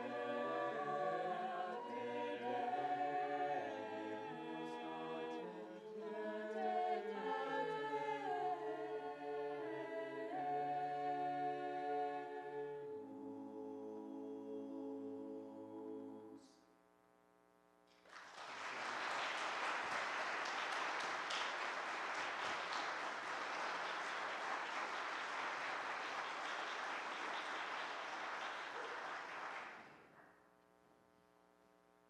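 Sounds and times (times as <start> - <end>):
choir singing chord: 0.0 - 16.4
audience applause: 18.0 - 30.0.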